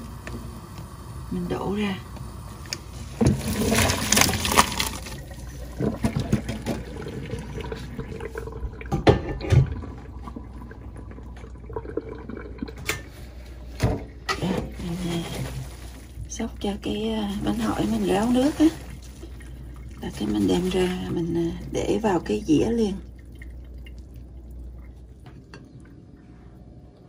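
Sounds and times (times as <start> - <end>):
water splashing into a sink: 0.0 - 26.0.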